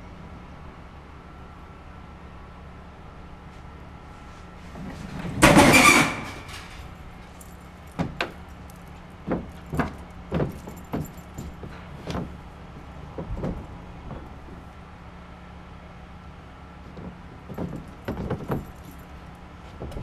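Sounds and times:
metal cabinet crashing over: 5.1s - 6.9s
knocks and scuffs: 7.4s - 14.7s, 16.8s - 20.0s.

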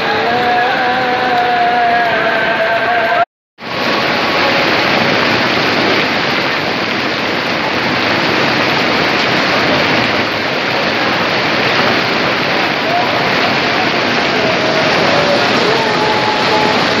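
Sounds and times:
hail falling on umbrellas and pavement: 3.6s - 17.0s.

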